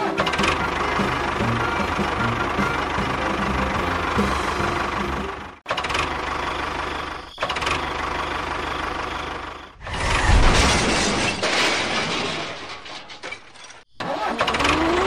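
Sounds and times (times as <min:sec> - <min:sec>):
tractor engine running: 0:00.0 - 0:09.8.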